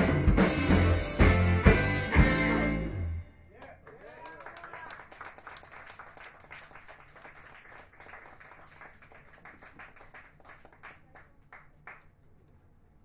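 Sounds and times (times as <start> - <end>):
faint applause: 3.5 - 12.2.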